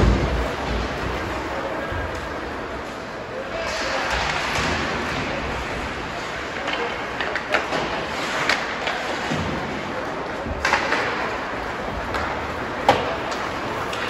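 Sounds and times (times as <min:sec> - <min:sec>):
ice rink noise: 0:00.0 - 0:14.0
hockey sticks knocking puck: 0:03.5 - 0:14.0.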